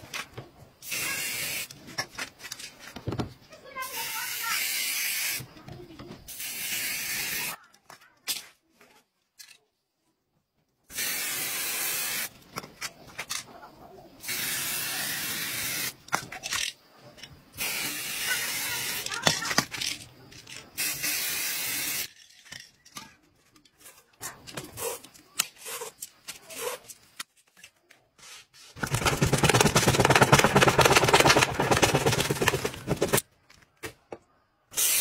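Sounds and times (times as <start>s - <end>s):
spray paint can hissing: 0.8s - 1.9s, 3.8s - 5.6s, 6.3s - 7.6s, 10.9s - 12.4s, 14.2s - 16.2s, 17.6s - 19.8s, 20.5s - 22.2s, 24.7s - 26.9s, 34.7s - 35.0s.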